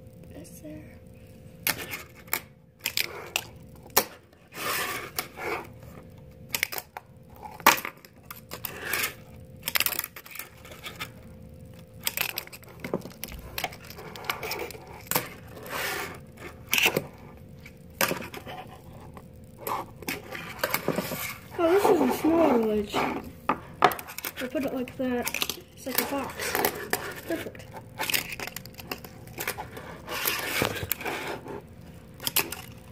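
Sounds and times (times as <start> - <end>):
paper card scraping and rustling: 4.5 - 6.0, 8.5 - 9.3, 13.6 - 24.6, 25.3 - 32.9.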